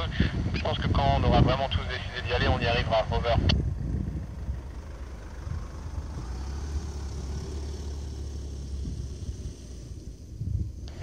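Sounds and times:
low outdoor background rumble: 0.0 - 11.0.

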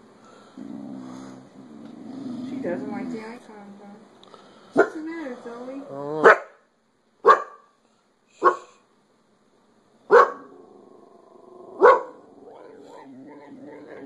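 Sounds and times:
dog barking: 4.8 - 5.0, 6.2 - 6.6, 7.2 - 7.7, 8.4 - 8.8, 10.1 - 10.5, 11.8 - 12.2.

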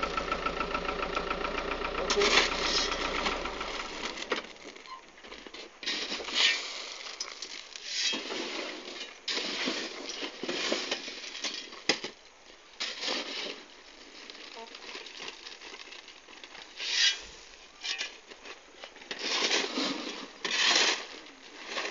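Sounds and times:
stone chips crunching and clinking: 6.4 - 12.1.

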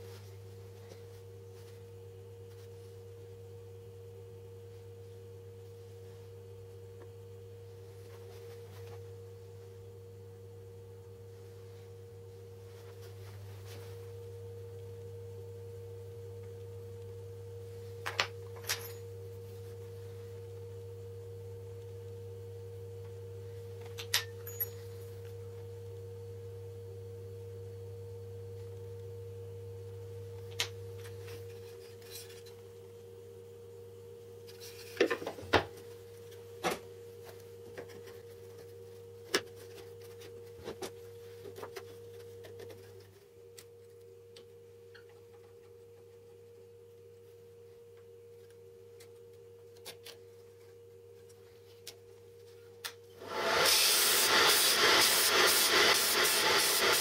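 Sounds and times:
steady low hum: 0.0 - 57.0
disc sander whirring: 53.2 - 57.0.

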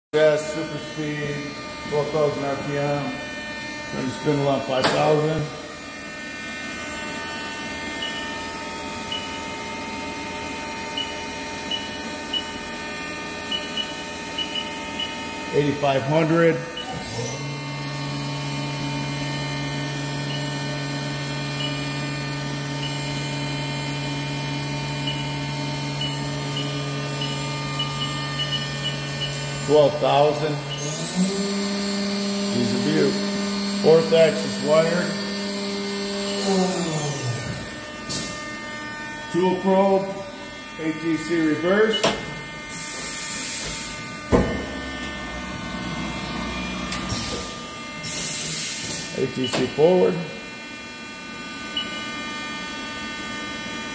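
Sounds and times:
machine spindle humming: 0.2 - 53.9
mechanical running noise: 3.2 - 39.3.

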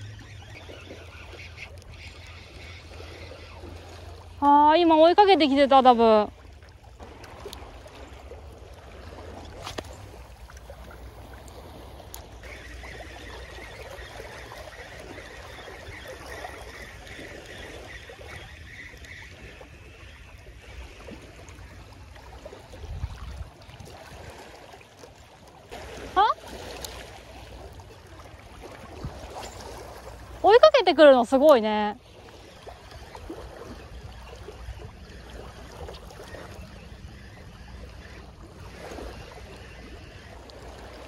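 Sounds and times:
fishing reel whirring: 0.0 - 6.0, 7.1 - 22.3, 26.2 - 41.0
wind on microphone: 22.6 - 24.4.

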